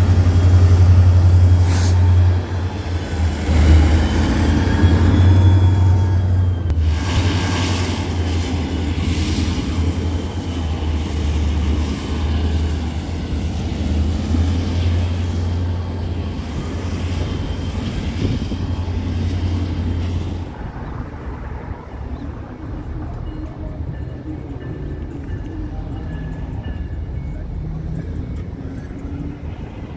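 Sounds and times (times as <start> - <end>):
diesel locomotive drone: 0.0 - 29.9
high locomotive whine: 0.0 - 29.9.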